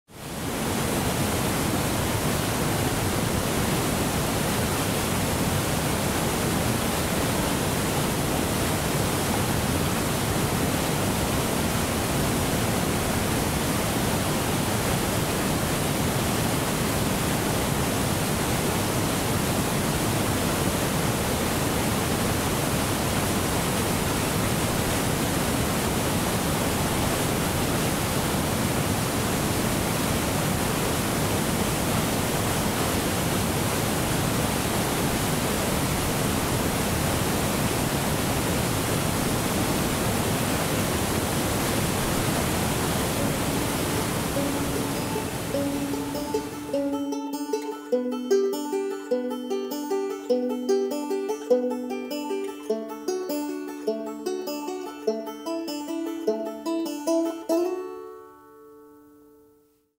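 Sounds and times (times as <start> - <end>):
water rushing over rocky cascade: 0.1 - 47.0.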